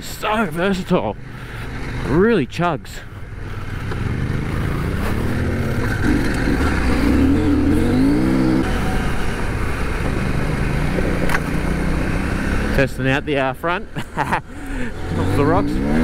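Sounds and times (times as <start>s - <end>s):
motorcycle engine chugging: 0.6s - 11.2s.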